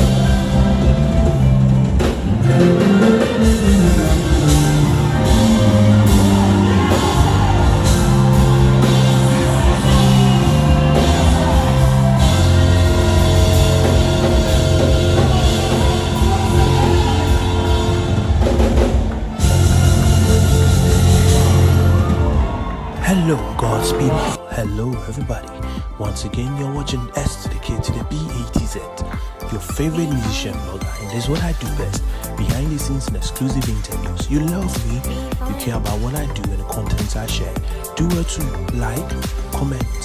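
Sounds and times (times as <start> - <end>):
drum kit played hard: 0.0 - 23.0
bass line: 0.0 - 40.0.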